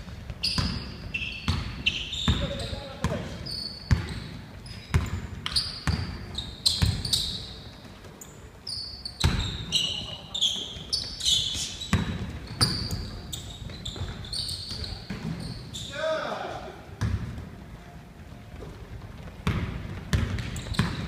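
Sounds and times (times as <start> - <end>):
sneakers squeaking on floor: 0.0 - 21.0
basketball bouncing on hardwood: 1.5 - 3.3, 3.9 - 4.3, 4.9 - 6.2, 6.8 - 7.2, 11.9 - 15.4, 17.0 - 17.5, 19.4 - 21.0.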